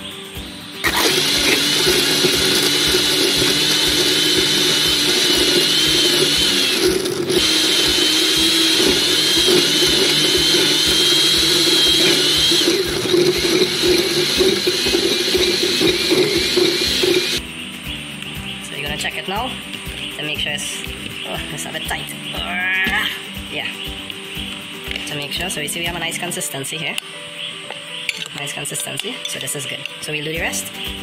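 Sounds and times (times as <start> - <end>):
blender motor running: 0.8 - 17.4.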